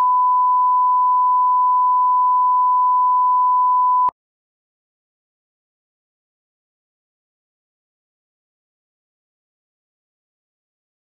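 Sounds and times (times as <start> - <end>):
steady test tone beep: 0.0 - 4.1.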